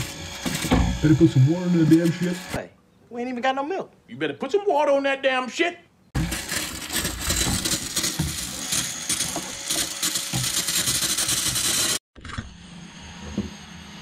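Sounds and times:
brush scrubbing metal parts: 6.2s - 12.0s.

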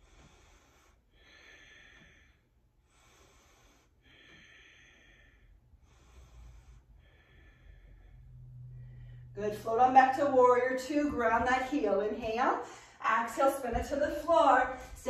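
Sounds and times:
woman breathing slowly: 0.0s - 9.4s, 12.6s - 13.0s, 14.7s - 15.0s.

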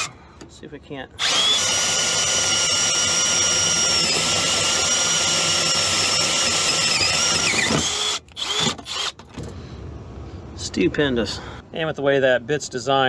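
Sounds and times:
cordless drill cutting metal: 1.2s - 9.2s.

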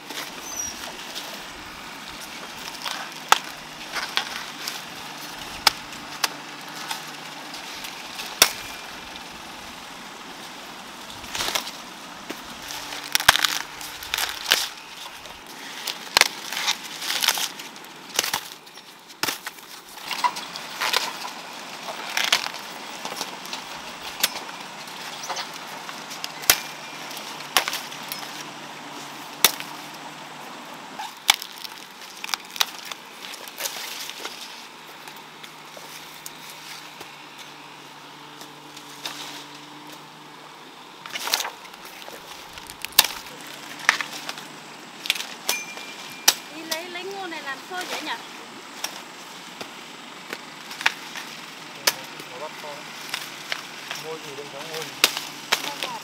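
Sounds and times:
plant stalks snapping: 2.1s - 9.2s, 11.1s - 28.5s, 29.4s - 30.0s, 31.0s - 37.5s, 41.0s - 45.6s, 53.1s - 56.0s.

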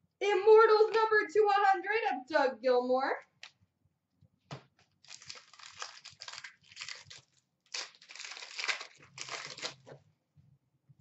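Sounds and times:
cards crinkling and rustling: 4.6s - 10.0s.

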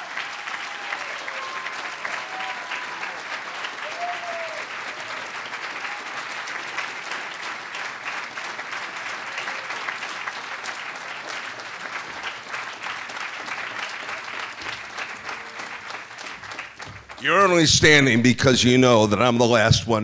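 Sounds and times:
audience applauding: 0.0s - 18.5s.

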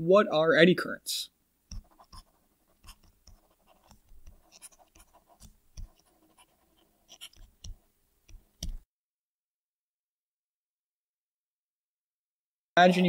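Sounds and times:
stylus writing on a tablet: 1.7s - 8.8s.

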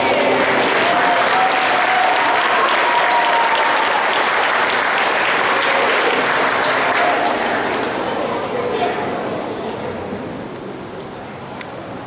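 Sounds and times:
audience clapping: 0.0s - 8.2s.

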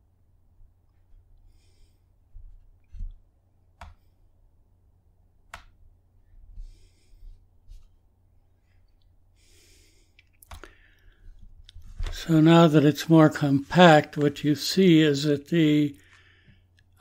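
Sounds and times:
faint breaths into microphone: 6.2s - 8.0s
computer mouse clicks: 10.2s - 10.7s.

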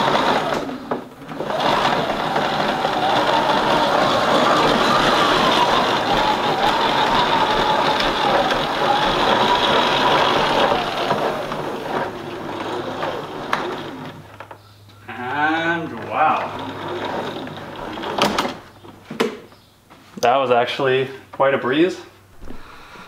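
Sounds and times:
hose reel winding whir: 0.0s - 14.6s, 15.2s - 18.8s.

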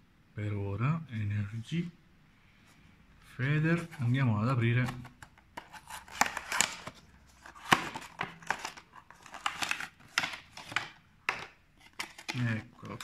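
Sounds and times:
cardboard and plastic handling: 3.7s - 13.0s.

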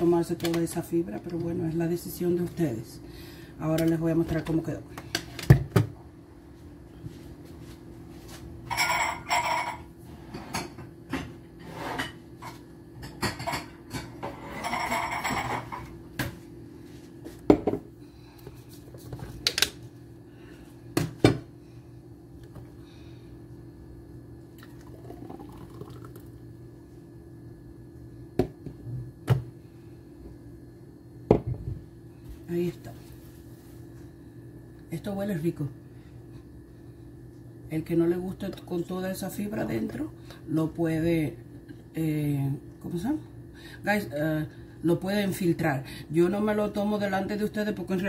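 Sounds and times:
steady low hum: 0.0s - 48.0s
juice pouring into glass: 24.5s - 26.4s.

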